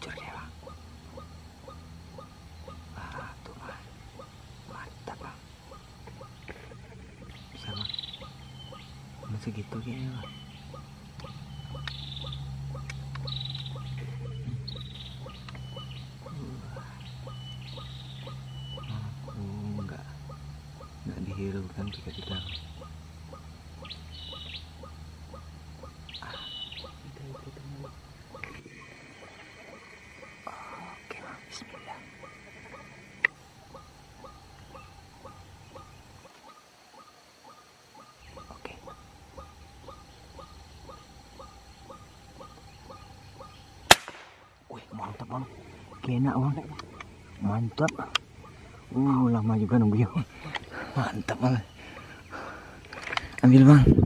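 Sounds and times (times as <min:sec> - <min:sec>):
waterhen calls: 0:00.0 - 0:30.5, 0:31.6 - 0:53.7
steady low hum: 0:00.0 - 0:54.0
sharp click: 0:43.9 - 0:44.4.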